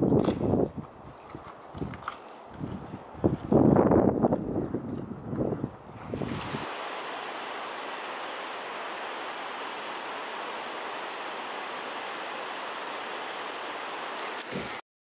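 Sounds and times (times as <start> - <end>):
waterfall rushing hiss: 6.2 - 14.8.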